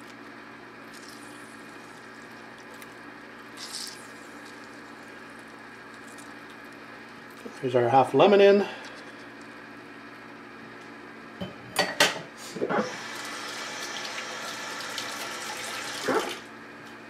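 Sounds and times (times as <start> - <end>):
kitchen tap running: 12.8 - 16.4.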